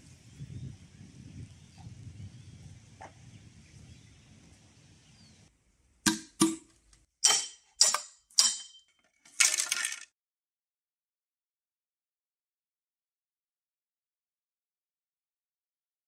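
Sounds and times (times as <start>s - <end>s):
faint outdoor ambience: 0.0s - 8.2s
knife splitting bamboo cracks: 6.1s - 8.6s.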